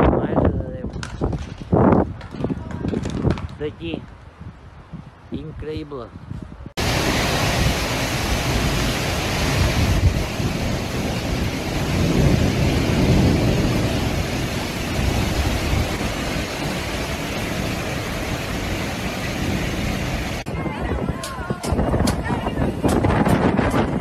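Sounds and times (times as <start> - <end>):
storm wind: 0.0 - 24.0
heavy rain: 6.8 - 24.0.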